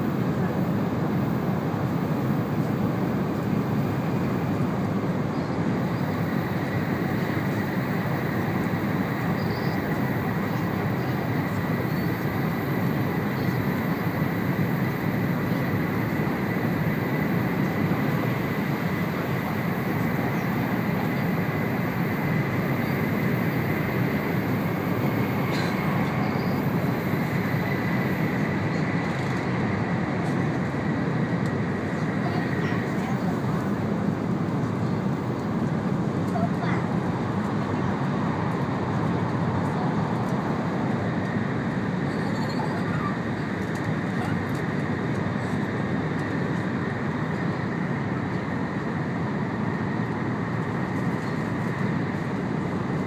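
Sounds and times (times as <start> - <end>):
faint high whine: 0.0 - 35.7
train interior rumble: 0.0 - 53.0.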